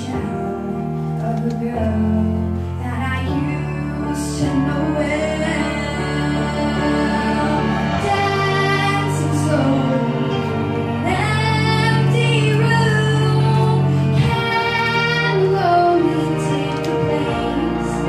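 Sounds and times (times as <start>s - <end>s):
girl singing into microphone: 0.0s - 10.1s, 11.0s - 18.0s
sustained accompaniment chords: 3.4s - 18.0s.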